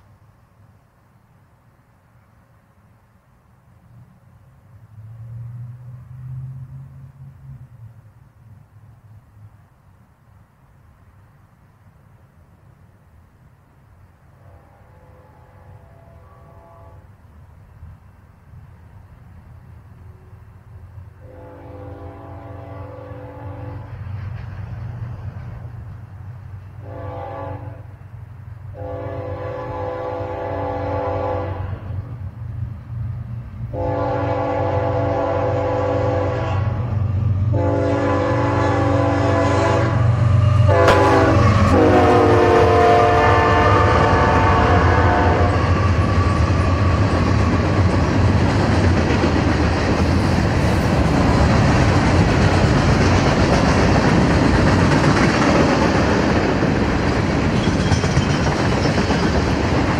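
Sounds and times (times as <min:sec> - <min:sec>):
locomotive horn blasts: 0:14.4 - 0:17.1, 0:21.2 - 0:23.9, 0:26.8 - 0:27.9, 0:28.7 - 0:31.9, 0:33.7 - 0:36.9, 0:37.5 - 0:45.6
diesel engines rumbling: 0:17.2 - 0:59.9.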